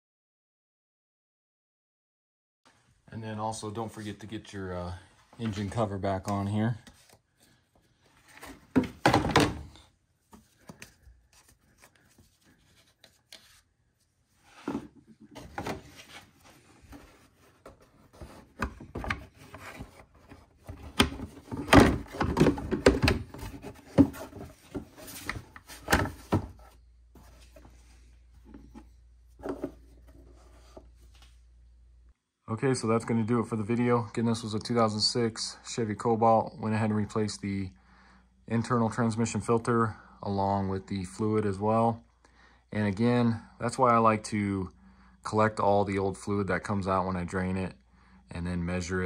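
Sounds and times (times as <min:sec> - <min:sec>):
plastic engine cover thunking: 0:08.7 - 0:09.7.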